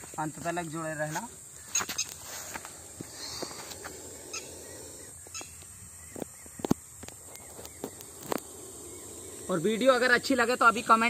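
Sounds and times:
faint bird calls: 1.6s - 10.4s.

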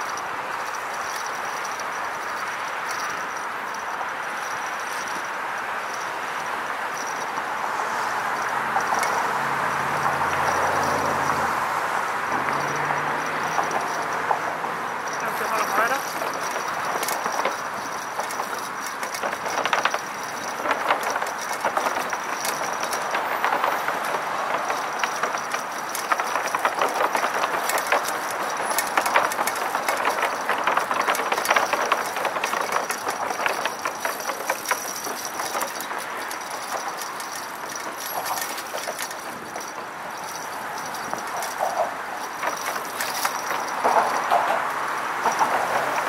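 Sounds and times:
bicycle wheels rolling: 0.0s - 46.0s
bike clattering over deck: 15.0s - 46.0s.

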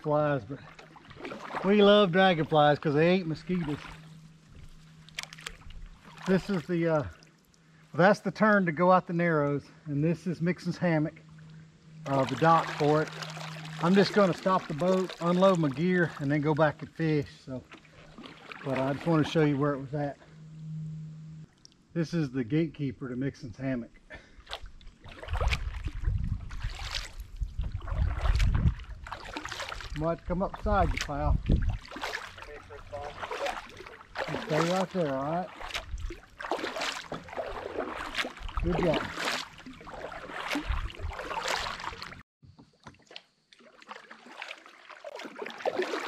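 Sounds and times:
kayak paddle strokes in water: 0.0s - 7.5s, 10.4s - 21.4s, 24.4s - 42.2s, 42.9s - 46.0s
water splashing and dripping: 0.0s - 7.5s, 11.3s - 19.4s, 24.4s - 42.2s, 42.8s - 46.0s.

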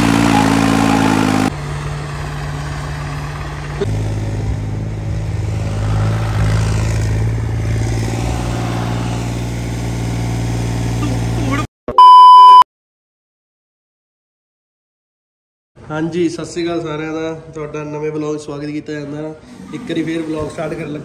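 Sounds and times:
vehicle engine running: 0.0s - 11.7s.

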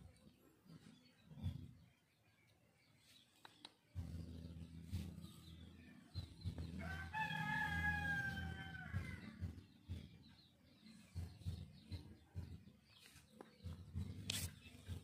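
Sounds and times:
rooster crowing: 6.8s - 9.4s.

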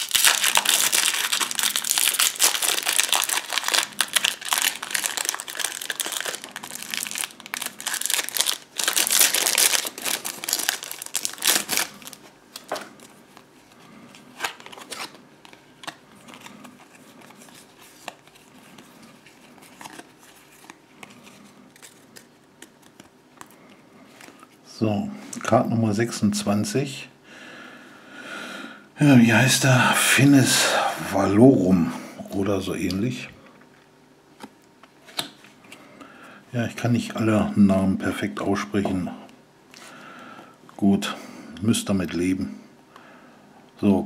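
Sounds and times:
foil pack crinkling and tearing: 0.0s - 23.5s.

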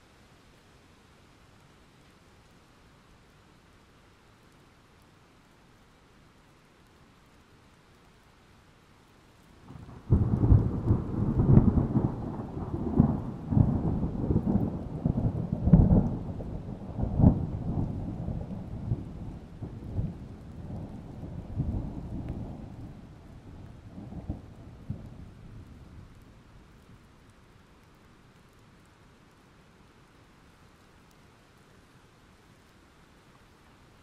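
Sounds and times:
thunder rolling: 9.7s - 26.1s.

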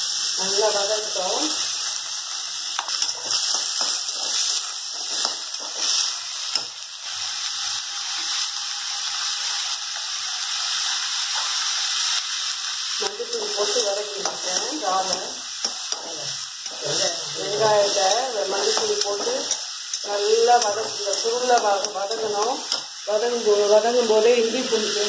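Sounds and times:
onions sizzling in hot oil: 0.0s - 25.0s
person speaking: 16.1s - 19.5s.

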